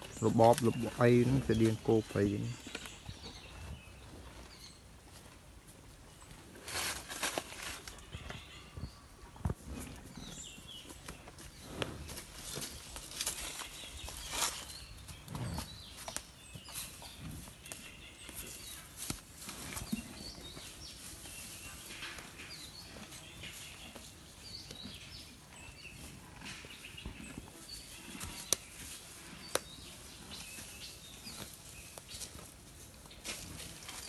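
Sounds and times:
small birds chirping: 0.0s - 6.6s, 8.0s - 34.0s
rustling: 6.5s - 8.0s.

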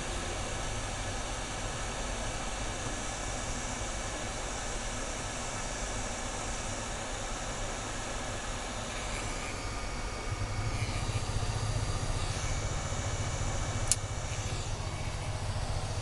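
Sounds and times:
sharp click: 13.8s - 14.5s.

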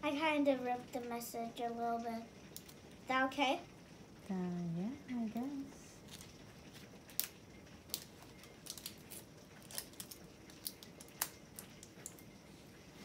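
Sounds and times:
plastic wrapping crinkling: 6.0s - 12.4s.

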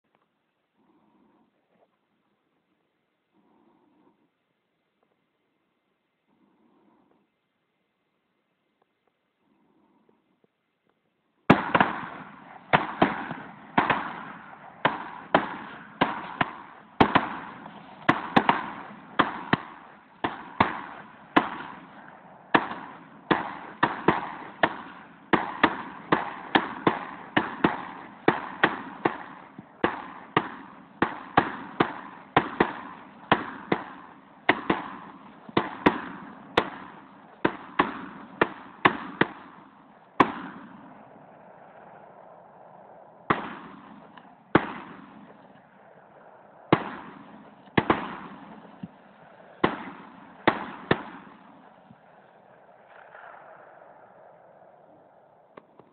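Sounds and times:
rifle gunshots with echo: 11.5s - 55.9s.

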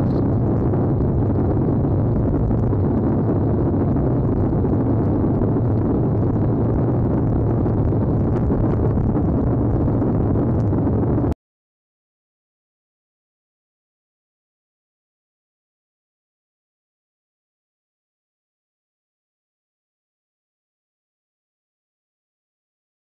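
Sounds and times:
wind buffeting microphone: 0.0s - 11.4s.

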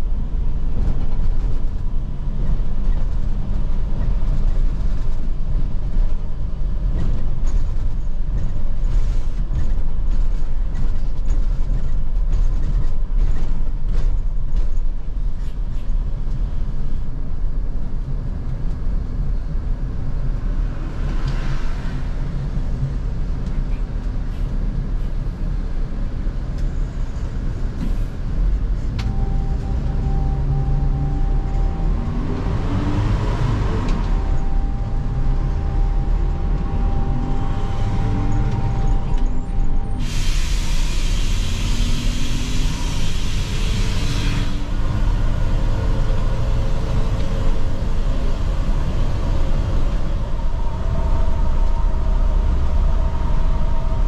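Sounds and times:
diesel engine: 0.0s - 54.0s
road rumble: 0.0s - 54.0s
air hissing: 39.8s - 44.8s.

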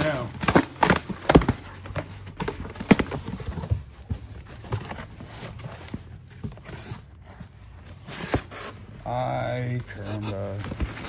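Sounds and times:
household items knocking and clattering: 0.0s - 6.7s.

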